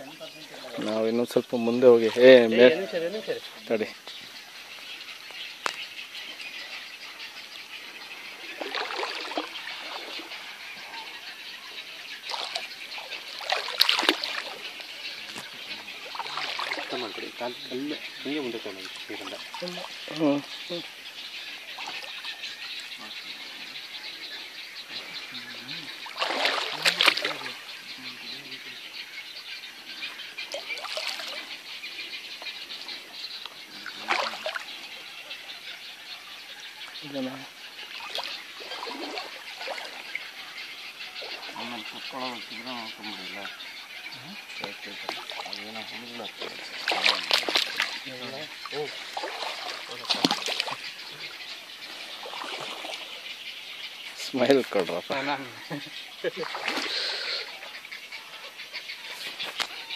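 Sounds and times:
water sloshing: 8.0 - 23.6, 25.0 - 27.8, 30.4 - 31.6, 33.8 - 35.0, 37.0 - 42.7, 44.6 - 57.8.

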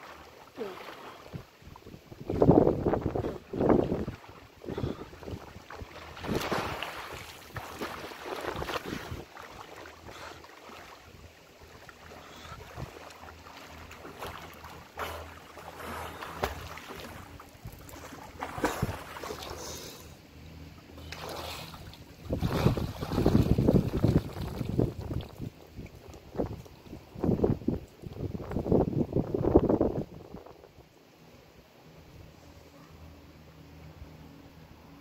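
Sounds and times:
swimmer splashing: 0.0 - 25.6
wind on microphone: 1.3 - 9.4, 12.3 - 13.0, 22.2 - 30.9.

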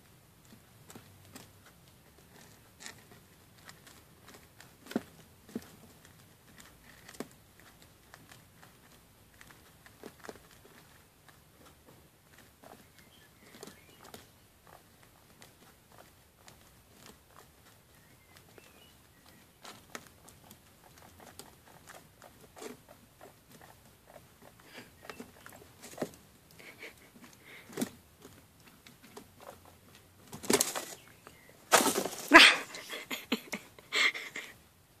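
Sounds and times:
guinea pigs scratching and pattering: 0.0 - 32.4
rustling bedding: 30.2 - 32.9.

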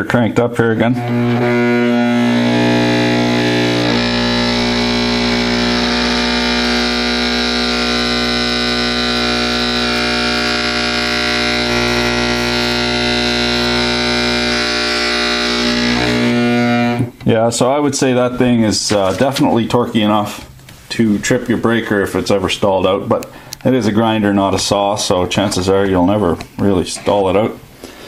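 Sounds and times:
stalled motor humming: 1.0 - 17.1.

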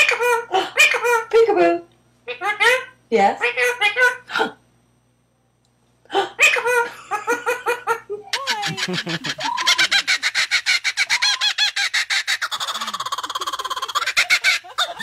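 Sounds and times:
woman laughing: 6.2 - 10.4, 12.6 - 15.0
kookaburra cackling call: 8.3 - 15.0.

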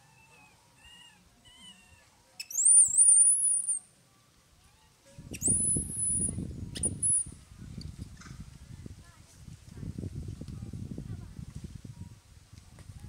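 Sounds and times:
baby monkey squealing: 0.1 - 3.8, 4.8 - 7.3.

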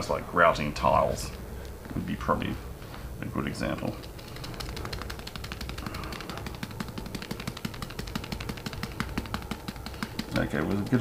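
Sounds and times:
ballast grains pattering: 3.9 - 11.0
fingers tapping a bag: 4.0 - 11.0.

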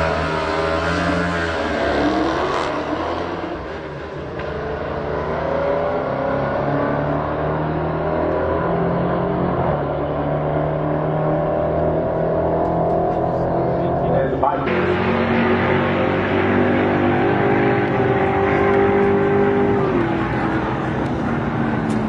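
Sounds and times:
motorcycle accelerating hard: 0.0 - 4.0, 4.8 - 22.0
car accelerating hard: 0.0 - 22.0
rising engine tone: 5.2 - 22.0.

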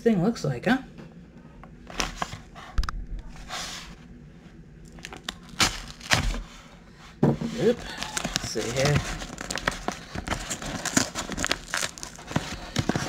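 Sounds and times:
paper and tape crinkling: 4.9 - 6.5, 7.4 - 13.0
blade slitting paper: 5.0 - 6.5, 7.5 - 13.0
rasping stretch of tape: 7.6 - 13.0.

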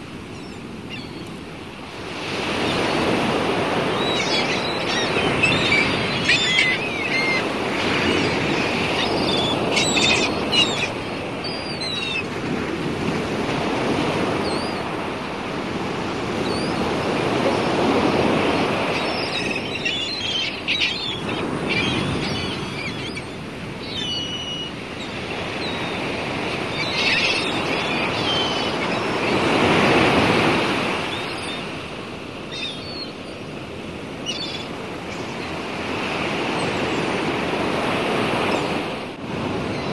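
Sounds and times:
sea water surging: 0.0 - 39.9
bird cries: 0.3 - 1.3, 2.5 - 12.3, 17.5 - 30.1, 32.4 - 33.5, 34.2 - 37.1.

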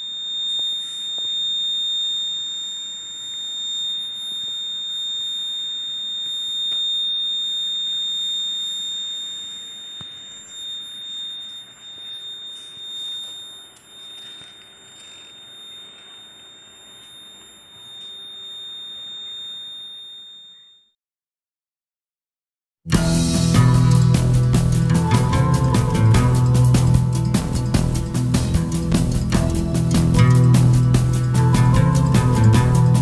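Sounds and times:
alarm buzzer high tone: 0.0 - 20.9, 22.9 - 33.0.

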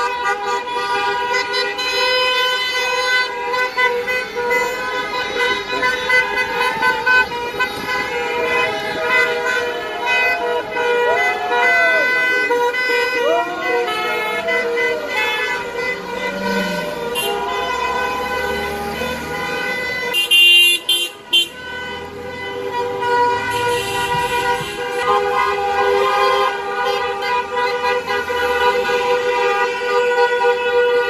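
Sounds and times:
car horns honking: 0.0 - 31.0
passing car engines: 0.0 - 31.0.

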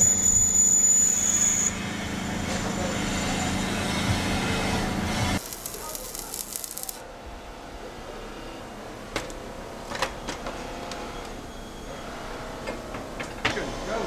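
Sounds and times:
machine humming: 5.1 - 7.4
high whine: 5.2 - 7.1.

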